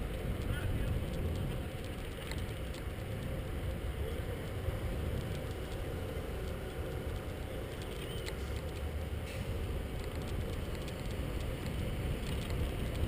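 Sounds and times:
bicycle tyres on road: 0.0s - 13.0s.

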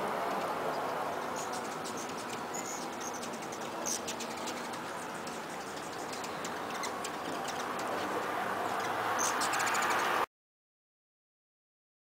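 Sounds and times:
hummingbirds chipping: 0.0s - 10.2s.

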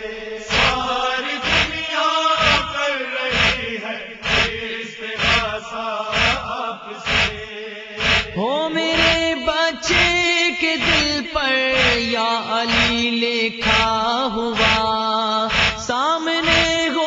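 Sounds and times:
men chanting: 0.0s - 17.0s
chest-beating thumps: 0.5s - 1.8s, 2.4s - 8.4s, 10.8s - 11.2s, 11.8s - 12.1s, 12.7s - 14.0s, 14.6s - 14.9s, 15.5s - 16.8s.

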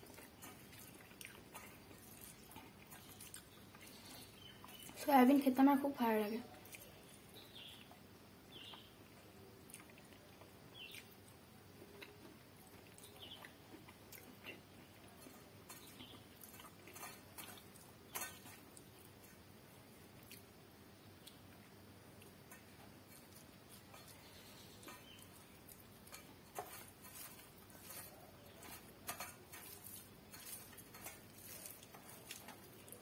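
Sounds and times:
chewing and wet mouth clicks: 0.0s - 4.9s, 6.5s - 8.0s, 8.6s - 19.4s, 20.2s - 20.5s.

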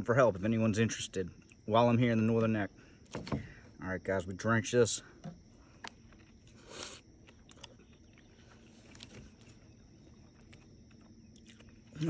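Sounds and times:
faint chewing: 5.6s - 12.0s.

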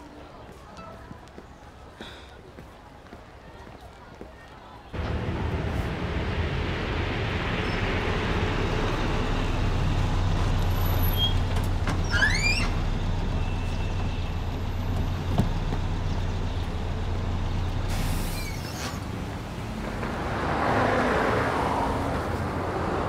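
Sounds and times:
bus engine humming: 5.0s - 23.0s
rising squeal: 6.2s - 14.9s, 18.0s - 19.0s.

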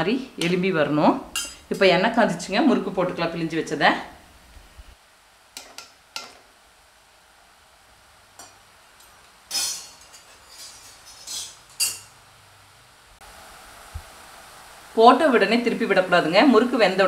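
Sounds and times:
faint frying hiss: 0.0s - 17.0s
metal ladle clinking on pan: 1.3s - 1.6s, 5.6s - 6.4s, 8.4s - 8.6s, 9.5s - 12.2s
dough sizzling in hot oil: 4.6s - 17.0s.

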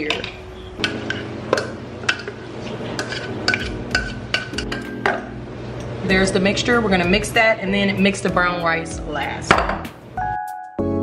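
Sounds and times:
spatula knocking metal bowl: 0.0s - 2.4s, 3.0s - 5.3s, 9.5s - 9.9s
soft background music: 0.0s - 11.0s.

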